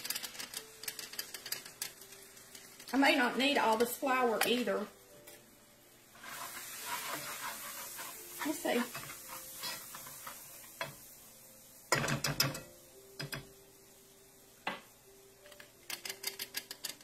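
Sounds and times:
whisk clattering against pan: 6.2 - 10.9
flour sifter ratcheting clicks: 15.5 - 17.0.

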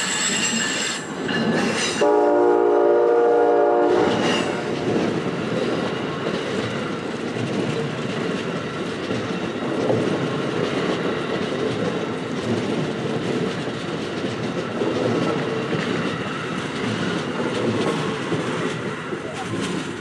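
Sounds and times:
train wheels running on rails: 0.0 - 20.0
faint clicks over rails: 4.1 - 20.0.

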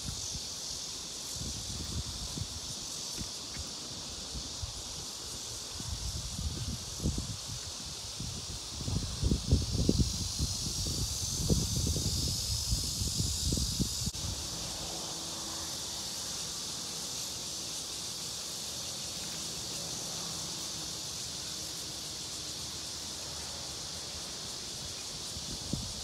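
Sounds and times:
insects buzzing: 0.0 - 26.0
microphone wind rumble: 5.8 - 14.4.

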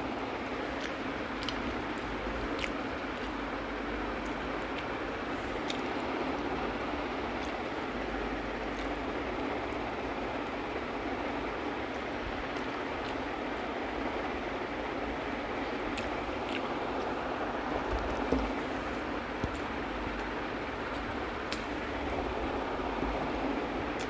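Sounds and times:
fingers working rice: 0.0 - 14.7
chewing: 0.6 - 6.6, 7.3 - 7.8, 8.6 - 9.8, 11.9 - 13.4, 15.9 - 21.8
small clicks and smacks: 0.7 - 3.5, 4.2 - 5.0, 5.6 - 6.1, 7.3 - 7.8, 15.9 - 17.1, 17.8 - 22.2.

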